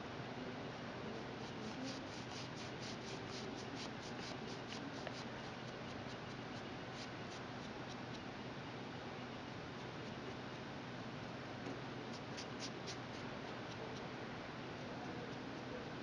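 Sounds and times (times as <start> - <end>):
scratchy rubbing strokes: 1.4 - 8.0.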